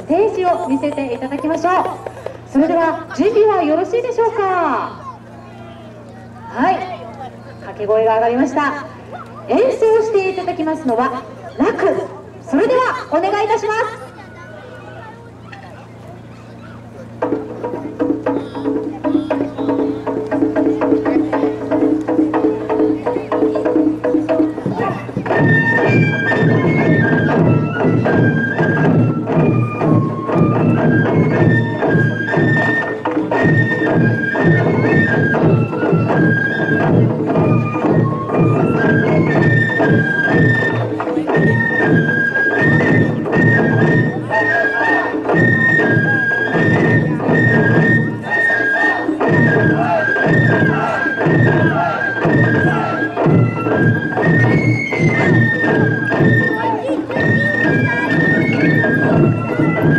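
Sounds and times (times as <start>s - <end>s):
taiko drums beating: 0.0s - 5.3s, 16.8s - 59.9s
bamboo flutes playing melody: 14.0s - 59.9s.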